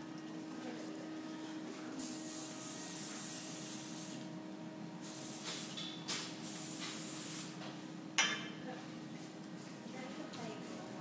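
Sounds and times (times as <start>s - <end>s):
hairspray spraying: 2.0s - 4.2s, 5.0s - 5.8s, 6.4s - 7.5s.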